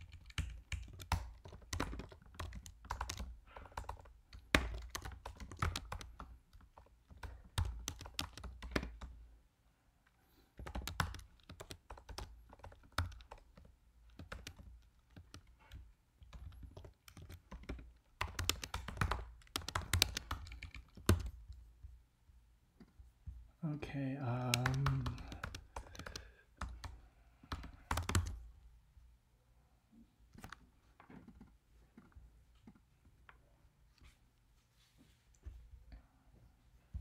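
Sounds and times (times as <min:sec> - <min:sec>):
typing on computer keyboard: 0:00.0 - 0:09.2, 0:10.6 - 0:21.6, 0:24.4 - 0:28.4.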